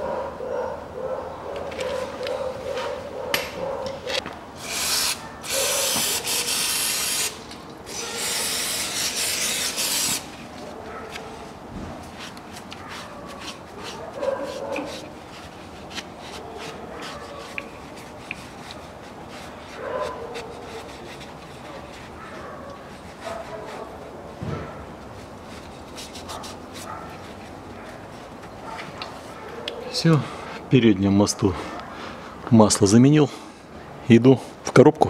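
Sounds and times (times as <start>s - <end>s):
spray can hissing: 4.6s - 10.3s
rag wiping metal housing: 4.6s - 29.5s.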